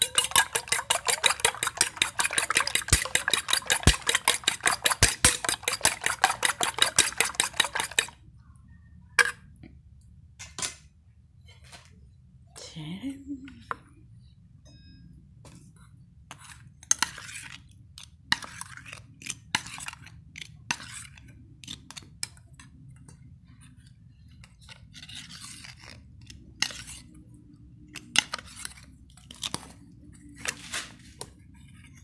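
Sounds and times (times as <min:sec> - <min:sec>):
metal spoon clinking on bowl: 0:00.0 - 0:08.1.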